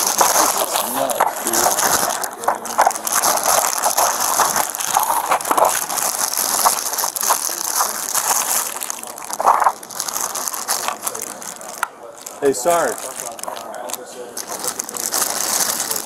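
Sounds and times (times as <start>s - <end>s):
plastic bag crinkling: 0.0s - 16.0s.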